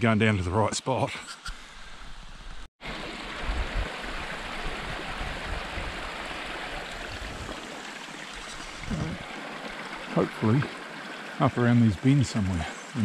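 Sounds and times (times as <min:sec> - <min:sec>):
stream rushing over rocks: 0:02.8 - 0:13.0.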